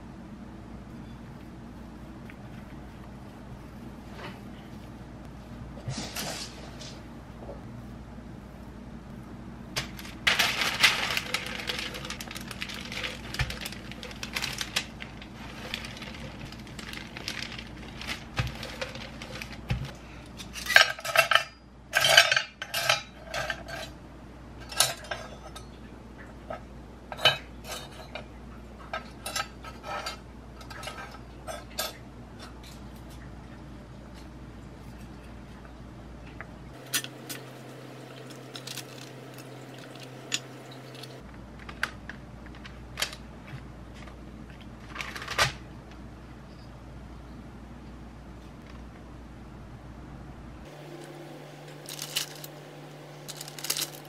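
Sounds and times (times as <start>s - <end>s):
kitchen utensils clinking: 9.8s - 24.0s, 24.6s - 25.8s, 36.8s - 41.2s, 53.2s - 54.0s.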